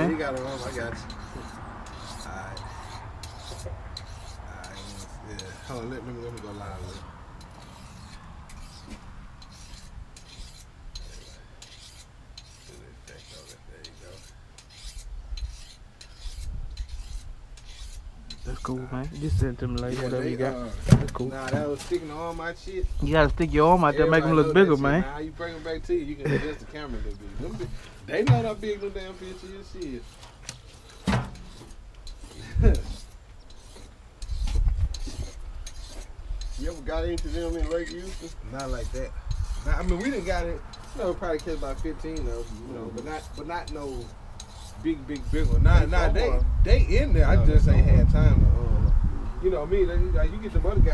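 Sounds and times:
scratchy rubbing on microphone: 0.0 - 26.0, 26.8 - 48.7
low rumble: 19.2 - 19.8
fish rubbing against steel box: 27.2 - 45.6.

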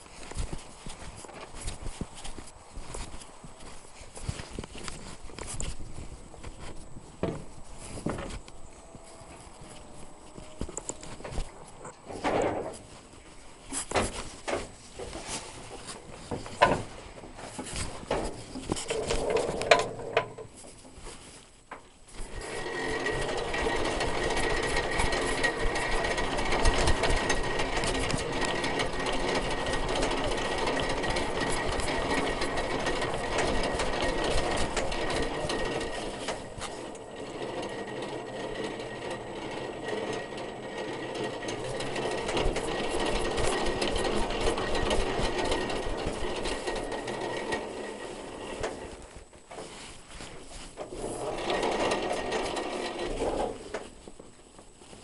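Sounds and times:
fast mechanical clatter: 22.2 - 49.2, 50.8 - 53.9.

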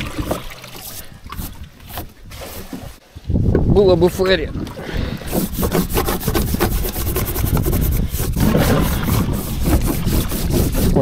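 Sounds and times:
scrubbing boat hull: 5.0 - 11.0.

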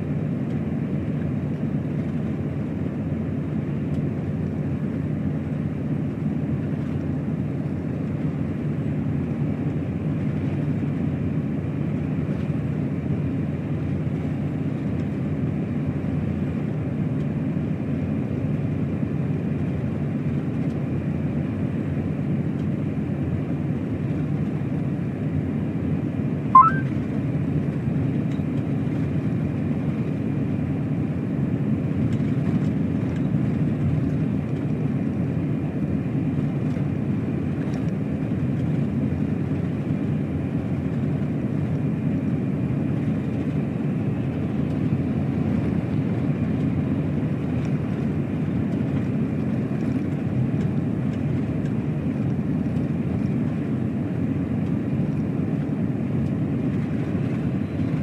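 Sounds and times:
truck engine and tyres drone: 0.0 - 58.0
brief rising squeak: 26.6 - 26.9.

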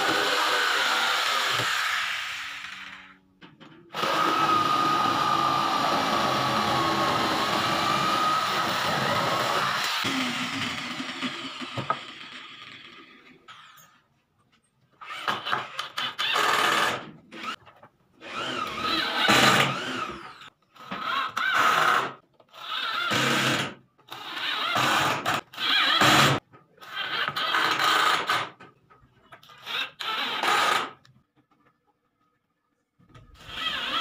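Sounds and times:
electric drill drilling into wood: 0.0 - 3.1, 4.0 - 13.0, 15.0 - 17.6, 18.2 - 20.5, 24.6 - 26.4.

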